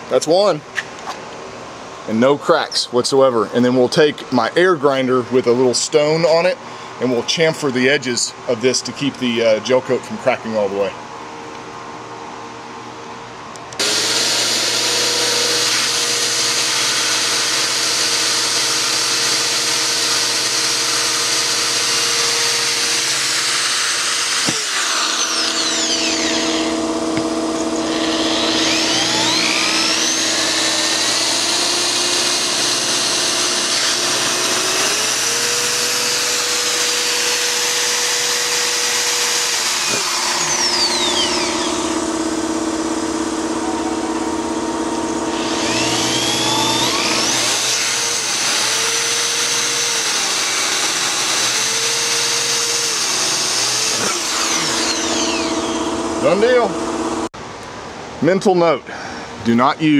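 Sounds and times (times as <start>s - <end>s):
drill bit cutting fiberglass: 13.8s - 43.6s, 44.3s - 57.3s
electric drill whining: 13.8s - 57.3s.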